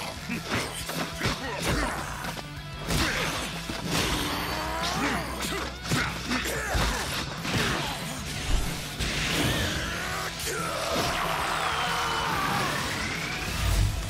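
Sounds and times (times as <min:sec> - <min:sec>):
character's strained shouts: 0:04.2 - 0:08.1.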